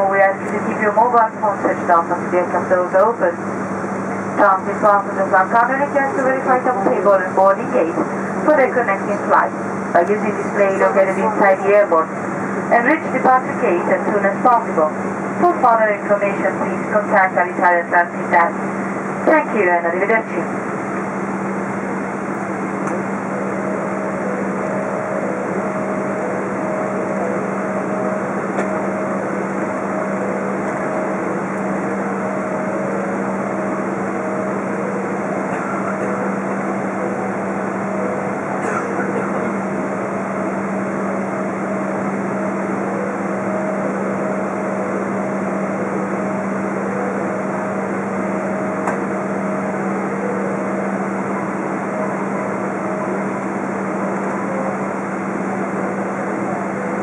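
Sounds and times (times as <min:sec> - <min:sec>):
cabin air system hum: 0:00.0 - 0:57.0
jet engines idling: 0:00.0 - 0:57.0.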